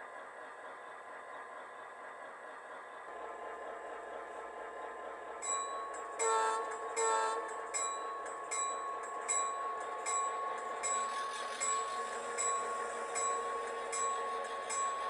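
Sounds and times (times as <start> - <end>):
diesel locomotive engine drone: 0.0 - 15.0
locomotive bell ringing: 5.4 - 15.0
locomotive horn blasts: 6.2 - 7.5.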